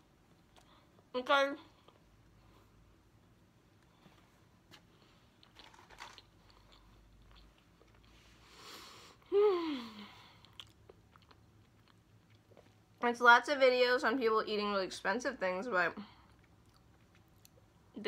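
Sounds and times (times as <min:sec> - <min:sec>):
soft chewing: 0:01.7 - 0:08.6, 0:10.2 - 0:13.0, 0:16.0 - 0:17.9.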